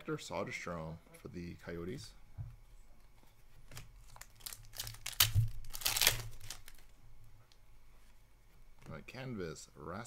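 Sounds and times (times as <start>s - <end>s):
foil wrapper crinkling: 3.7s - 7.0s.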